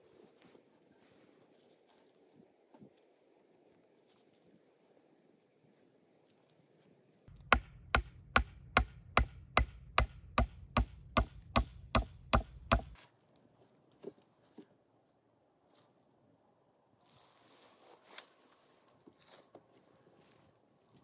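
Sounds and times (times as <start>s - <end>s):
tool striking wood: 7.3s - 13.0s.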